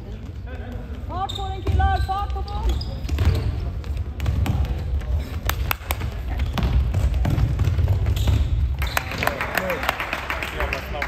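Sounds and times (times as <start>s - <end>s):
basketball bouncing: 0.6s - 9.0s.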